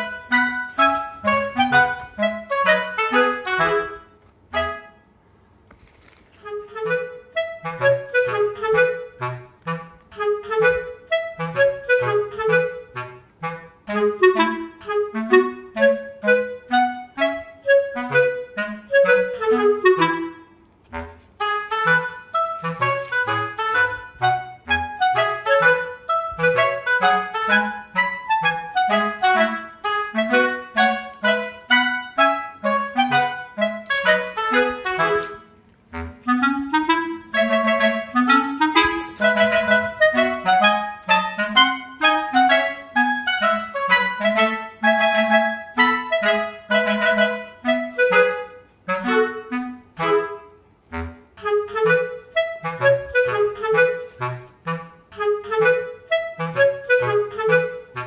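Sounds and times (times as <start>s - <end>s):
instrumental music with quick notes: 0.0s - 5.3s, 6.3s - 58.0s.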